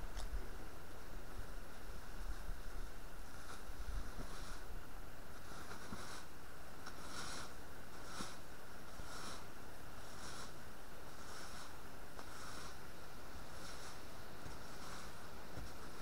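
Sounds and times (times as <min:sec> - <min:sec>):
rake scraping leaf litter: 0:03.3 - 0:16.0.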